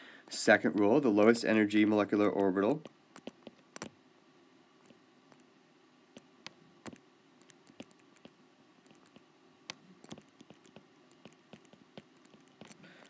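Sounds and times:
low steady hum: 0.0s - 13.0s
stylus tapping on tablet screen: 2.8s - 3.9s, 6.2s - 12.8s.

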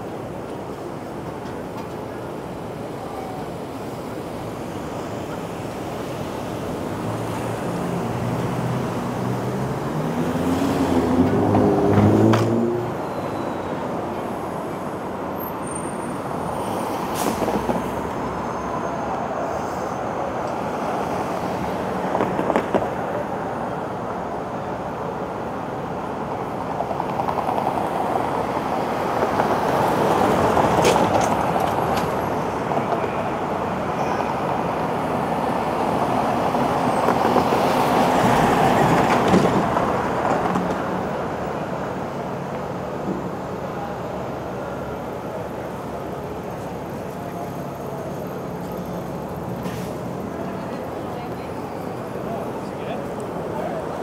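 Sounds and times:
cars passing: 0.0s - 54.0s
truck passing close: 6.0s - 22.0s, 34.4s - 54.0s.

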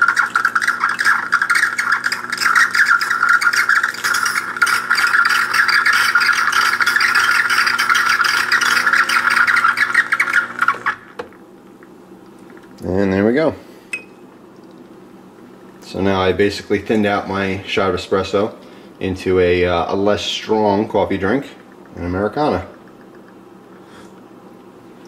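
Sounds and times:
espresso machine hum: 0.0s - 18.4s.

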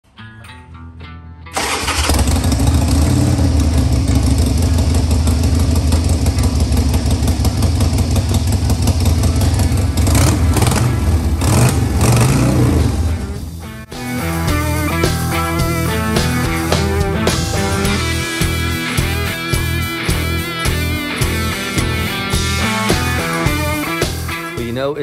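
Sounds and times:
motorcycle engine idling: 1.6s - 13.6s
motorcycle throttle blips: 1.7s - 12.9s.

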